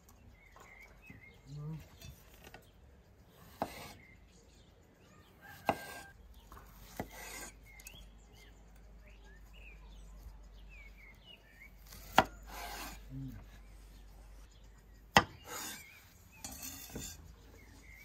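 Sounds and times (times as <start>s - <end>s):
small birds chirping: 0.0s - 18.0s
knife blade scraping: 6.8s - 7.6s, 11.9s - 13.1s, 15.3s - 18.0s.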